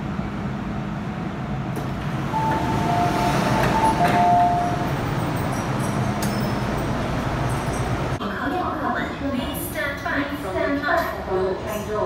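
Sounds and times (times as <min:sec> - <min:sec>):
train wheels rumbling on rail: 0:00.0 - 0:08.2.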